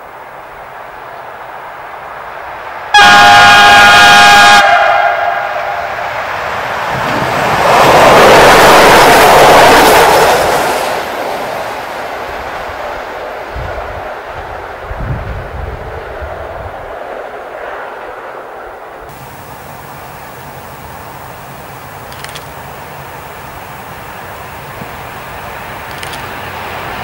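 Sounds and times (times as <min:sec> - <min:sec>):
train engine and wheel noise: 0:00.0 - 0:27.0
locomotive horn blast: 0:02.9 - 0:06.1.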